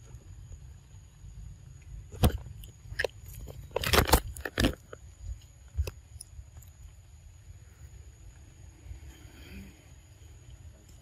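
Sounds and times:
monkey crunching food: 0:02.1 - 0:06.3.

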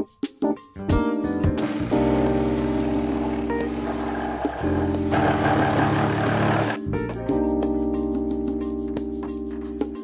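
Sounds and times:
background music: 0:00.0 - 0:10.0
cordless drill running: 0:01.6 - 0:06.8.

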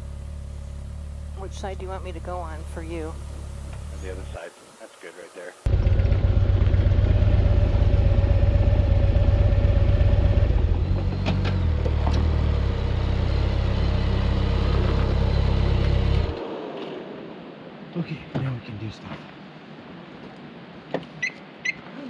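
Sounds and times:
motorcycle engine idling: 0:00.0 - 0:04.3, 0:05.7 - 0:11.2
second motorcycle pulling up: 0:05.7 - 0:17.0.

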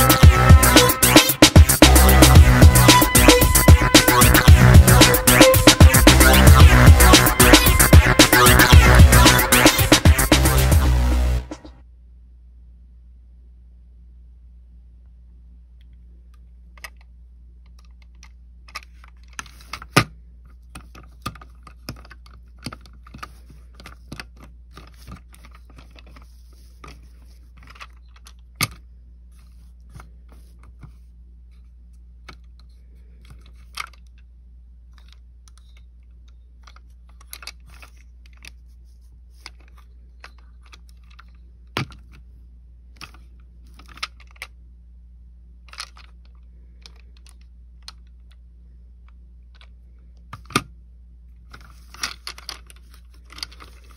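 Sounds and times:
plastic toy car clicks and rattles: 0:16.3 - 0:28.9, 0:32.2 - 0:34.3, 0:34.9 - 0:38.6, 0:39.3 - 0:42.2, 0:42.9 - 0:44.6, 0:45.6 - 0:48.4, 0:51.5 - 0:53.9.

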